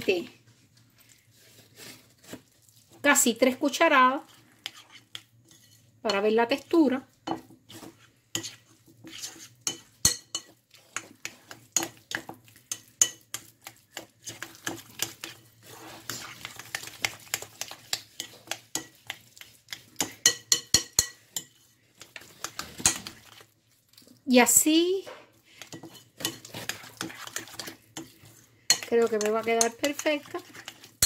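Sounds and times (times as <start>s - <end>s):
fork mashing batter in glass bowl: 1.0s - 31.0s.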